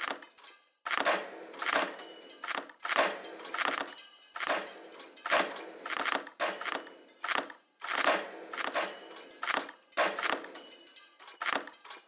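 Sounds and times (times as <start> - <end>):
sharp noisy percussive hits: 0.9 - 2.3, 2.9 - 10.8.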